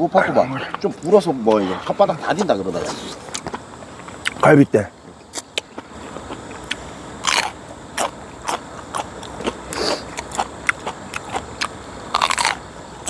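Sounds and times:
chewing crunches and wet clicks: 3.2s - 4.4s, 5.2s - 12.7s.

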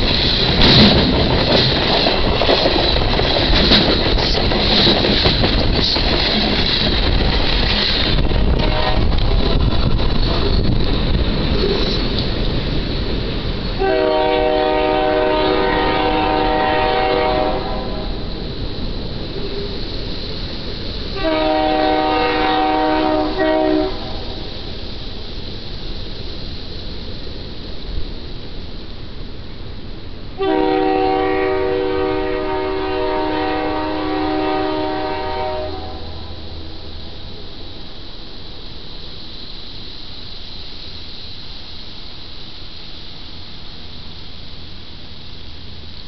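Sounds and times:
locomotive air horn blast: 8.5s - 9.2s, 13.8s - 18.2s, 21.2s - 24.3s, 30.4s - 36.6s.

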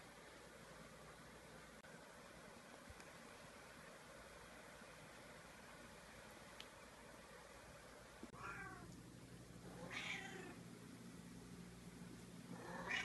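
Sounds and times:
cat meowing: 8.4s - 8.9s, 9.8s - 10.6s, 12.6s - 13.0s.

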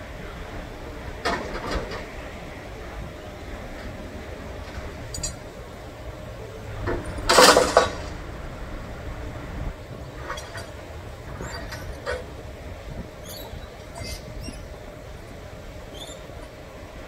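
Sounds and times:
idling engines and traffic rumble: 0.0s - 17.0s
metal chain clinking and rattling: 5.1s - 5.4s.

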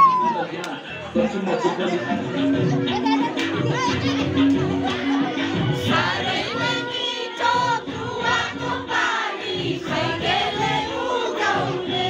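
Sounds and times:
music accompaniment: 0.0s - 12.0s
several voices singing: 3.6s - 12.0s.

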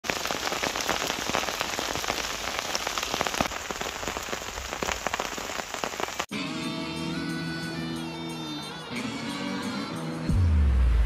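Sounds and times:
heavy rain hissing: 0.0s - 6.3s
raindrop hits: 0.0s - 6.3s.

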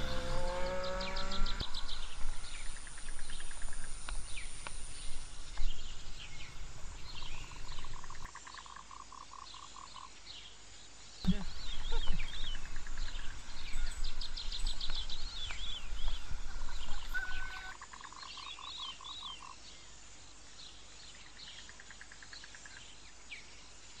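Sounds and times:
wind rumble on microphone: 0.0s - 8.3s, 11.3s - 17.7s
bird chirps and trills: 0.0s - 10.6s, 11.2s - 19.6s.

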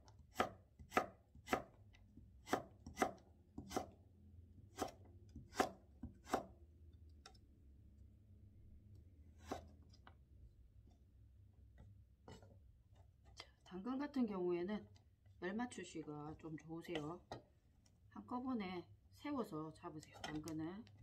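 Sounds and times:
knife chopping on wooden board: 0.2s - 1.8s, 2.4s - 4.0s, 4.7s - 6.6s, 9.4s - 9.7s.

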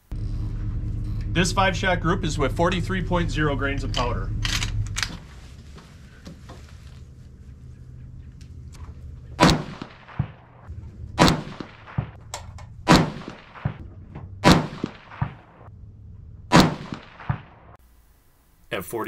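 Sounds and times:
rifle shots with echo: 9.4s - 12.2s, 12.8s - 15.7s, 16.5s - 17.8s.

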